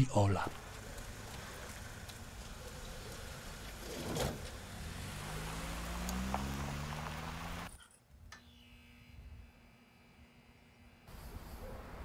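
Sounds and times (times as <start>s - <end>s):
van engine running: 0.6s - 7.8s.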